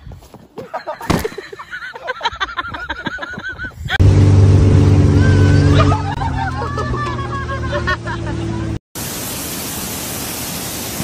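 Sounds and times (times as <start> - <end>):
motorboat engine running: 4.0 - 8.8
wind and water rushing: 9.0 - 11.0.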